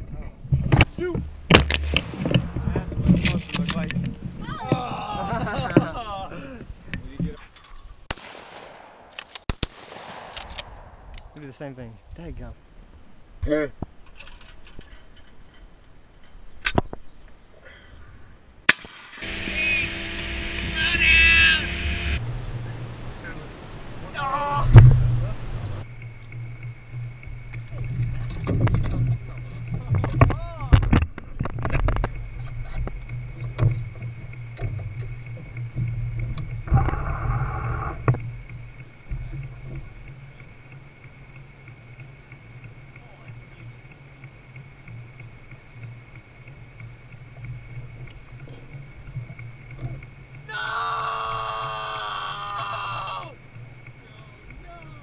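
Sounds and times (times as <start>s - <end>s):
steady low rumble: 0.0s - 7.2s, 9.7s - 13.4s, 19.1s - 50.4s
shotgun shots: 1.5s - 2.7s, 8.1s - 11.4s, 18.7s - 20.2s
steady engine hum: 19.2s - 50.5s, 52.6s - 55.0s.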